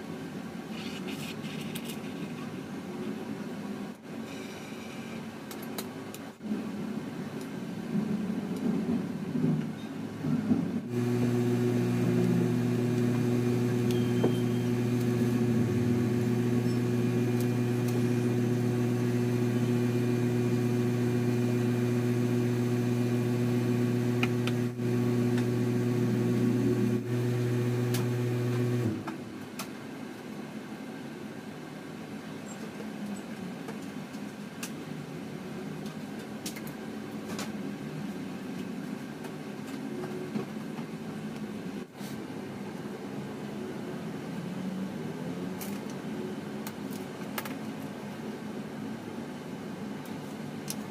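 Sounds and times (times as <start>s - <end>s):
low motor hum: 10.8s - 29.1s.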